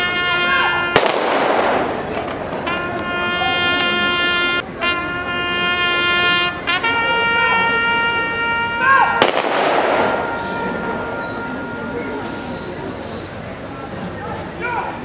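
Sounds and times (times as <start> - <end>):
brass instruments sustained notes: 0.0 - 13.9
rifle volley crack: 1.0 - 2.8, 9.2 - 10.6.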